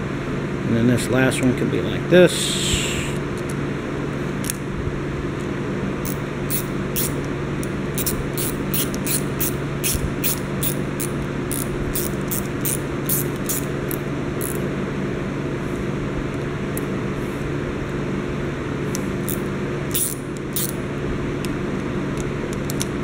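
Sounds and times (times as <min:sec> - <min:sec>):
steady background hum: 0:00.0 - 0:23.0
ratchet screwdriver clicking: 0:06.1 - 0:07.2, 0:08.0 - 0:14.6, 0:19.2 - 0:20.8.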